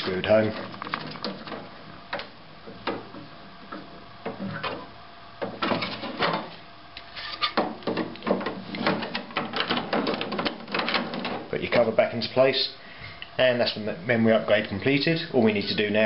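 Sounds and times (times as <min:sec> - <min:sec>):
plastic clattering and rubbing: 0:00.4 - 0:11.5.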